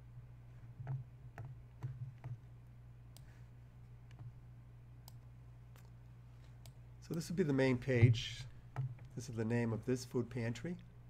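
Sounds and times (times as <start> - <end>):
low steady hum: 0.0 - 11.0
computer mouse clicking: 3.1 - 3.3, 4.0 - 4.4, 5.0 - 6.0.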